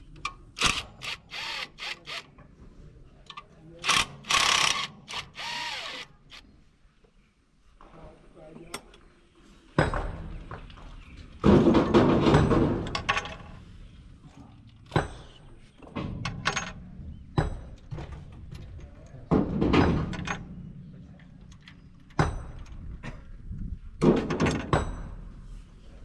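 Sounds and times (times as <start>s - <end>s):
soft metallic knocks: 9.8s - 13.6s, 14.9s - 21.0s, 21.8s - 23.2s, 24.0s - 25.5s.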